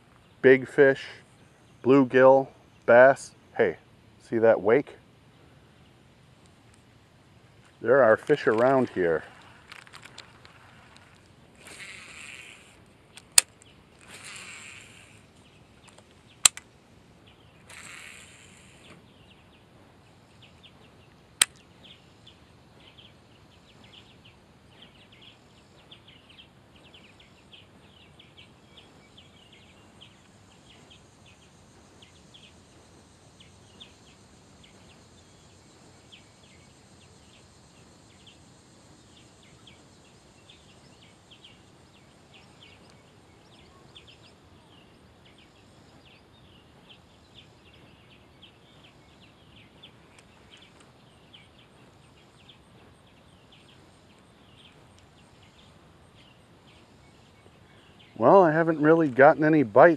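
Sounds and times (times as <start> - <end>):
sharp click: 13.1 - 14.8, 15.8 - 16.7, 21.4 - 21.7.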